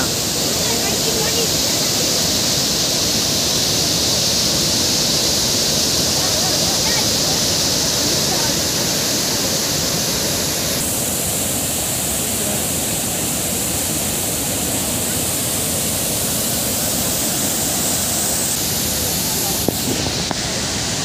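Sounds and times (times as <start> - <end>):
waterfall rushing over rock: 0.0 - 21.0.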